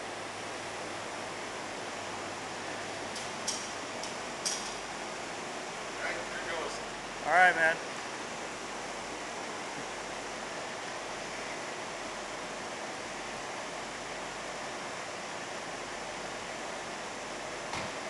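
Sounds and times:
fan rushing air: 0.0 - 18.0.

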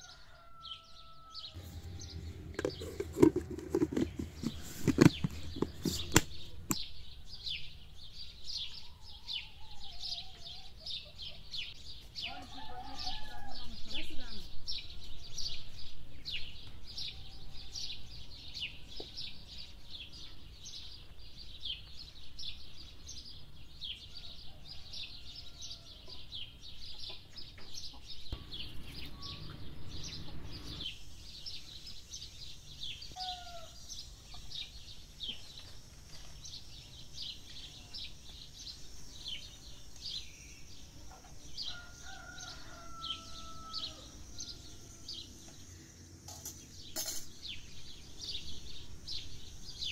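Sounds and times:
small birds chirping: 0.0 - 49.9
domestic fowl calling: 33.2 - 33.8.

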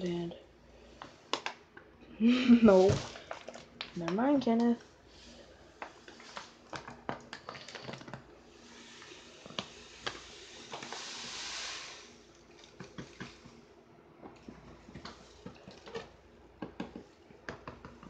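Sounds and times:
sugar pouring into plastic container: 7.4 - 13.4.

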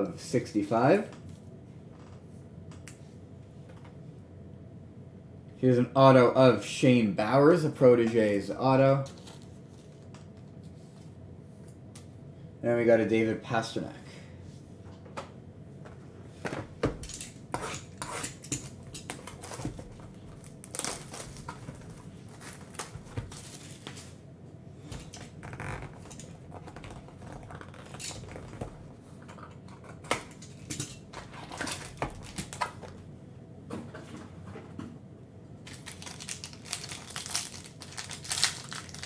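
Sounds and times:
plastic shrink wrap crinkling: 19.0 - 24.2, 31.2 - 33.0, 35.6 - 39.0.

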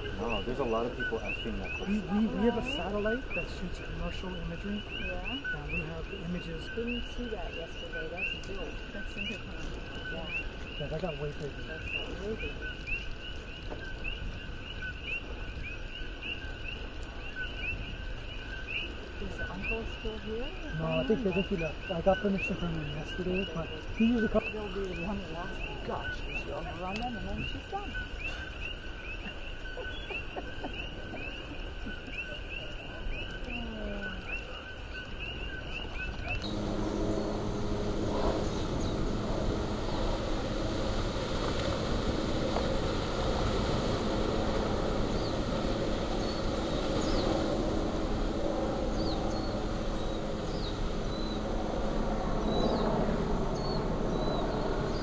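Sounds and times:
bird chirps: 0.0 - 37.5
high insect-like hiss: 0.0 - 51.9
low hum: 35.6 - 55.0
lava fountain rushing: 37.4 - 52.0.

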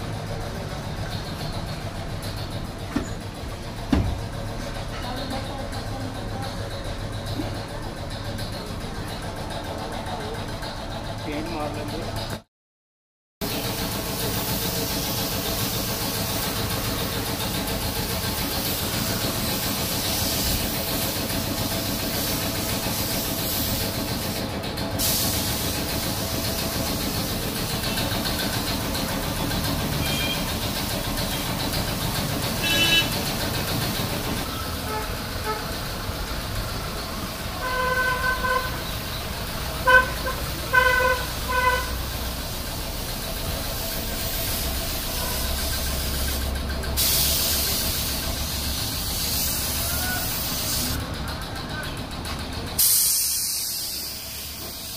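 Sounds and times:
street background noise: 0.0 - 12.5, 13.4 - 54.9
vehicle horn honking: 30.0 - 30.5, 32.6 - 33.2, 34.8 - 35.8, 37.6 - 38.8, 39.8 - 42.0.

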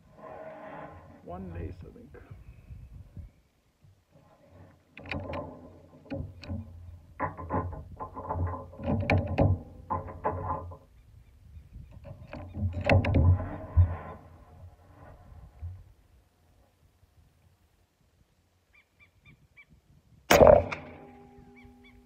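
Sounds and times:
wind gusts on microphone: 1.3 - 3.5, 10.9 - 16.1.

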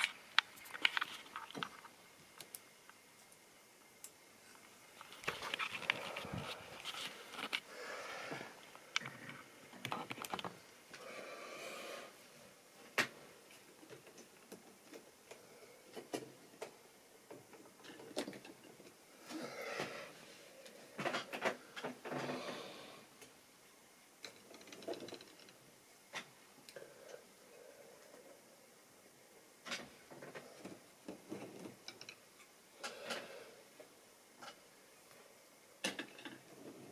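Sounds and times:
rustling handling noise: 0.0 - 2.6, 4.5 - 7.7.

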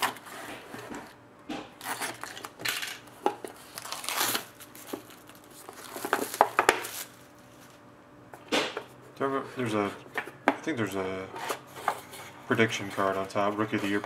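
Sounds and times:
plastic wrap crinkling and scraping: 1.8 - 2.7, 3.5 - 7.8, 12.0 - 14.0.

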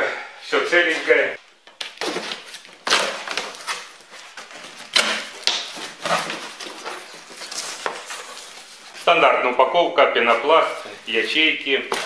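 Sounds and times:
cardboard rustling and scraping: 1.9 - 9.4.

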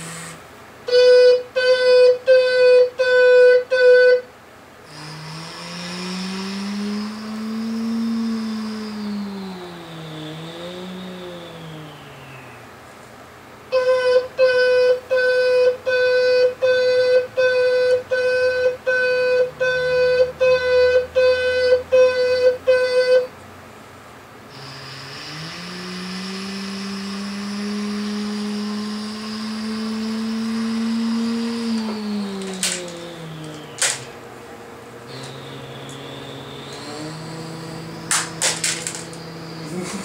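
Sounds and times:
toy electronic engine sound: 0.9 - 4.2, 13.7 - 23.3, 24.5 - 34.2, 35.1 - 40.0
toy reverse-warning beeper: 13.8 - 23.3, 35.1 - 39.8.

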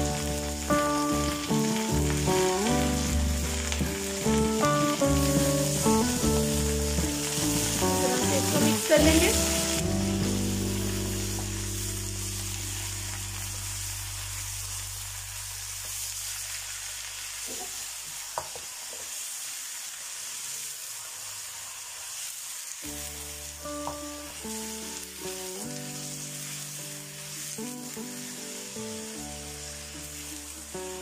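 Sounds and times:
soft background music: 0.0 - 16.4, 22.9 - 31.0
meat sizzling in oil: 0.0 - 31.0.

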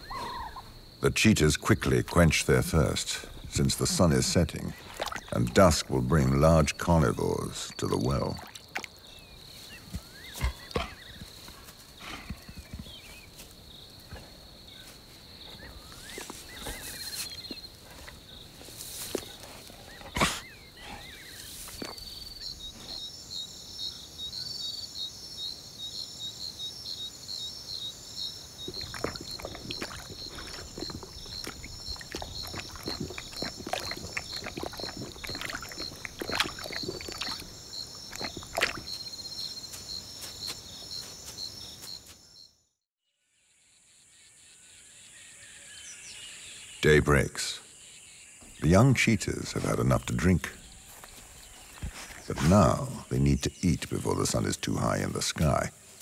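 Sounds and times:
pulsing cricket-like chirps: 0.0 - 42.7.

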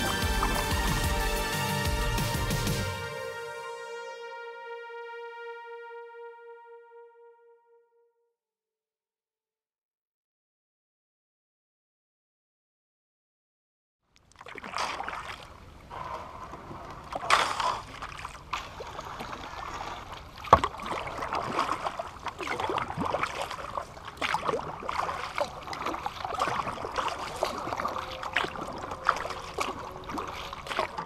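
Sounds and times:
kayak paddle splashing water: 0.0 - 3.1, 14.2 - 31.0.

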